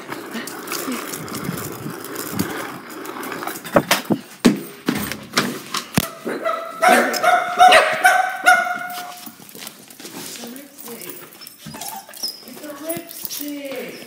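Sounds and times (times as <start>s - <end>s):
knocks and clatters: 3.4s - 6.1s
dog whining and yipping: 11.3s - 12.6s.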